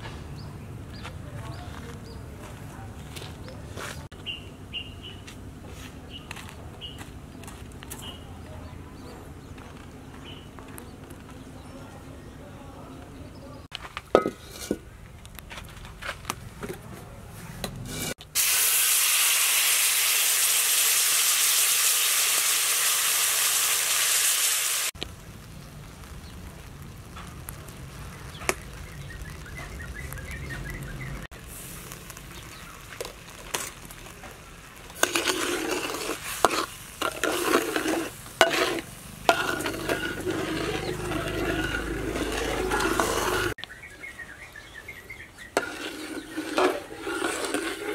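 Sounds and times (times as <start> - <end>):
metal ladle scraping wok: 14.1 - 14.8, 17.5 - 19.0, 34.8 - 43.6, 45.5 - 47.9
liquid sizzling in hot wok: 17.9 - 29.5, 31.3 - 43.6, 45.5 - 47.9.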